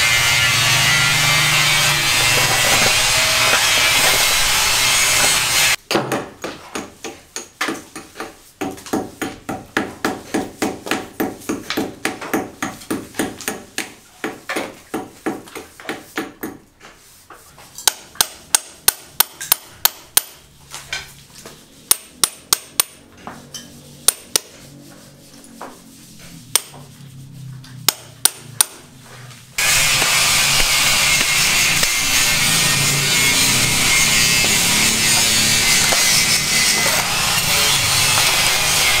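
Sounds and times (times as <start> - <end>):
hammer blows: 0.0 - 5.8, 29.6 - 39.0
steady scraping: 0.0 - 5.8, 23.1 - 27.8, 28.8 - 39.0.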